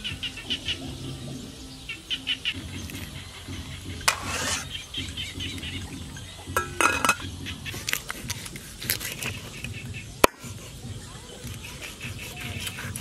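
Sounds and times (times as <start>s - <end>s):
pot lid knocking: 6.5s - 7.4s
metal lid clinking on pot rim: 6.6s - 7.3s.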